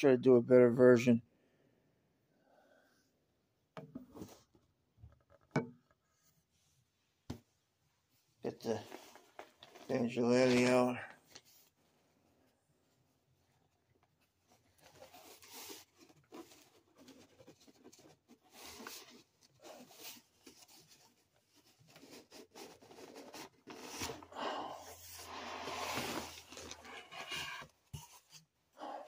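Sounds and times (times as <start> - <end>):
cardboard box rustling and scraping: 14.5 - 28.5.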